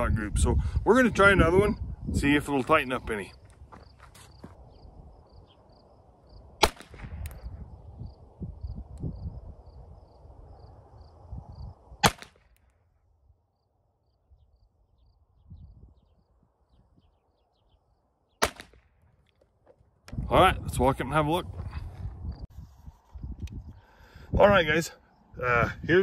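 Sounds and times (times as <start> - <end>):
pistol shots: 6.6 - 7.4, 12.0 - 12.5, 18.4 - 18.9.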